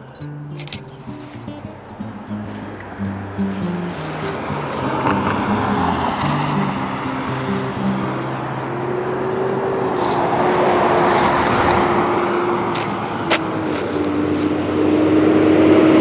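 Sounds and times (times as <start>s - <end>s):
steady traffic hum: 0.0s - 16.0s
car passing: 0.4s - 16.0s
sharp click: 0.5s - 0.9s.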